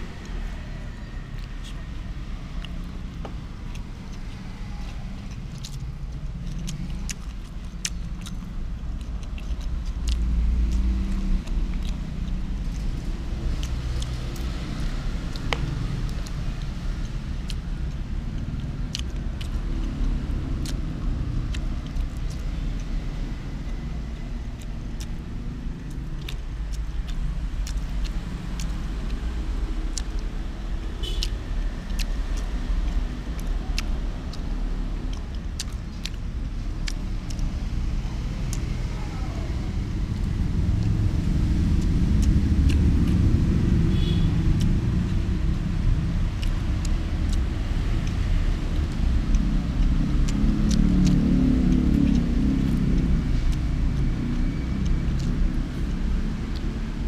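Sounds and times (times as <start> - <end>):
low traffic rumble: 0.0 - 57.0
chopsticks clicking: 44.5 - 57.0.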